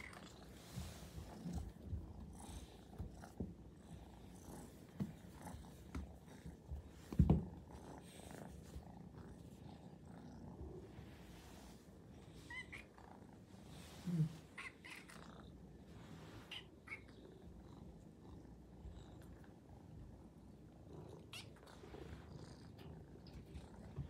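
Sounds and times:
kitten purring: 0:17.1 - 0:24.0.

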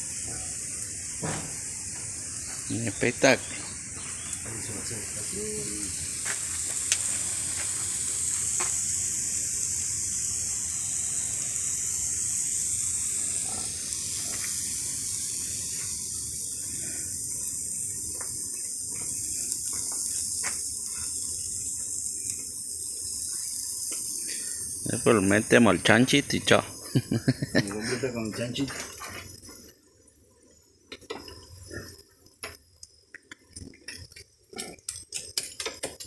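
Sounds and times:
meat sizzling on a grill: 0:00.0 - 0:36.0
small pops and crackles: 0:06.0 - 0:09.0, 0:13.4 - 0:24.6, 0:30.4 - 0:36.0.

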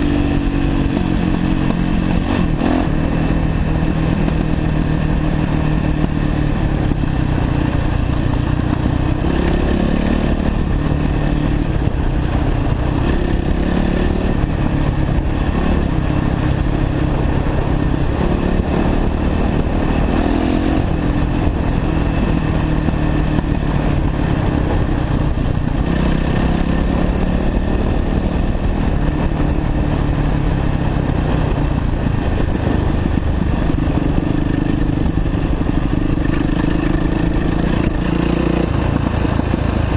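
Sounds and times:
dirt bike engine revving: 0:08.7 - 0:28.3.

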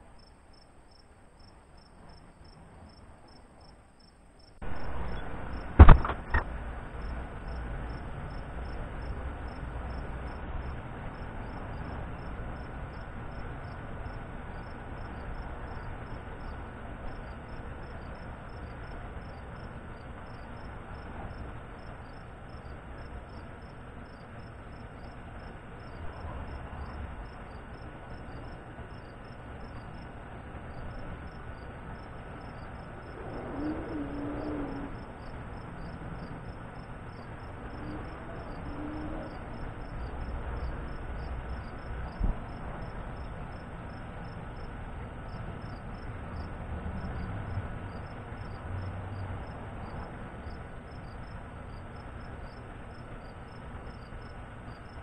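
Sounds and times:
insects chirping: 0:00.0 - 0:55.0
low outdoor rumble: 0:00.0 - 0:55.0
sharp click: 0:05.8 - 0:06.5.

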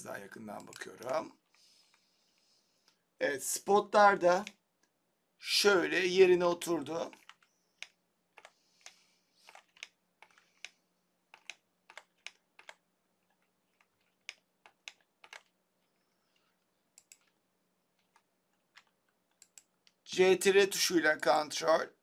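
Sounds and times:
faint steady low hum: 0:00.0 - 0:22.0
mouse and keyboard clicks: 0:00.5 - 0:02.0, 0:07.0 - 0:17.4, 0:18.0 - 0:20.0.

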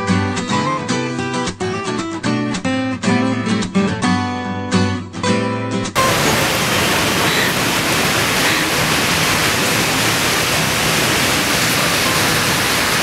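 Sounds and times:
strummed acoustic guitar: 0:00.0 - 0:13.0
outdoor background rush: 0:06.0 - 0:13.0.

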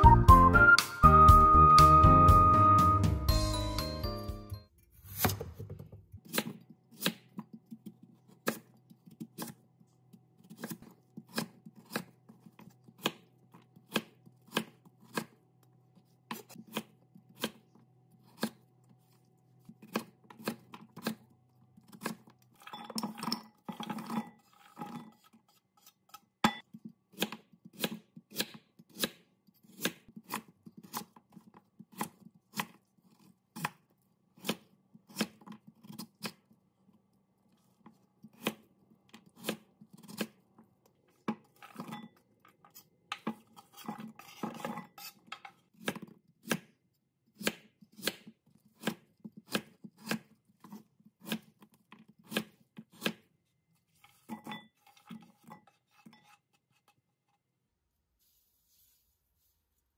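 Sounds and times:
knife chopping on cutting board: 0:05.1 - 0:09.6, 0:10.4 - 0:15.4, 0:16.3 - 0:18.6, 0:19.6 - 0:21.2, 0:23.9 - 0:33.8, 0:34.4 - 0:36.4, 0:37.8 - 0:40.4, 0:43.1 - 0:46.8, 0:47.4 - 0:53.3.

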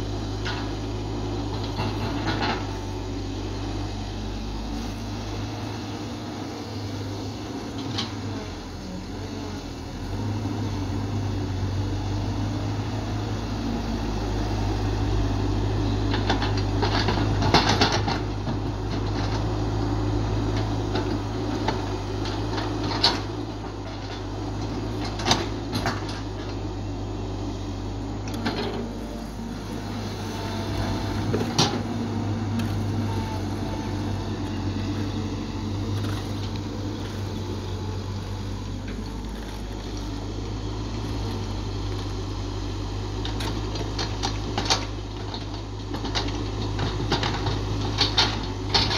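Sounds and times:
excavator diesel engine running: 0:00.0 - 0:48.9
sharp knocks from excavator: 0:16.1 - 0:19.1.

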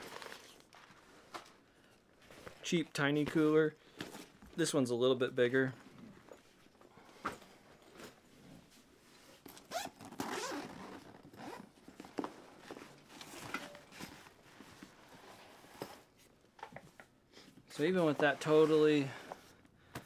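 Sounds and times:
bag fabric rustling: 0:09.3 - 0:16.2
zipper being pulled closed: 0:09.4 - 0:11.8.

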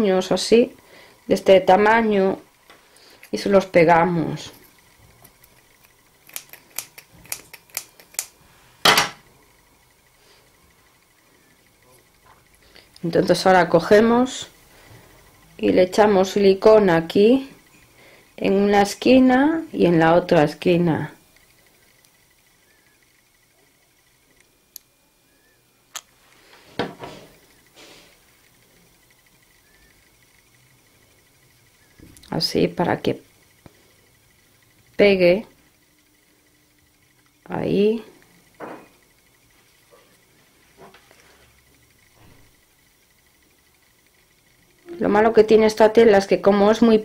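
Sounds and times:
scissors snipping fabric: 0:06.2 - 0:08.3
faint steady high tone: 0:15.4 - 0:21.3, 0:44.8 - 0:47.0.

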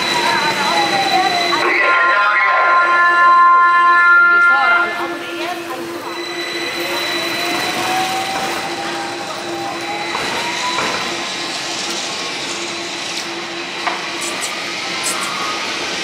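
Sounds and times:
street noise: 0:00.0 - 0:16.0
electric tram motor whine: 0:03.6 - 0:16.0.

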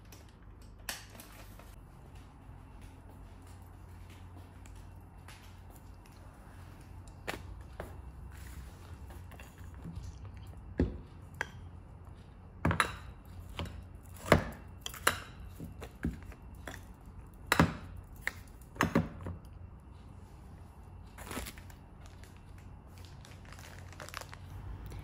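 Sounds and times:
glass jars knocking and clinking: 0:12.6 - 0:16.8.

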